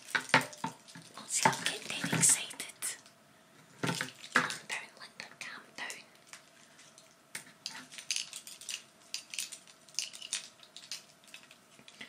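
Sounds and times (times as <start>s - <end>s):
handling crinkles and clicks: 0.0s - 3.2s, 6.2s - 12.0s.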